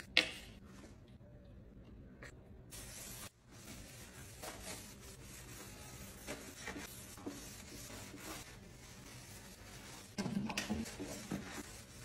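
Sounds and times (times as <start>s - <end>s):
sponge rubbing on metal: 3.6s - 10.2s.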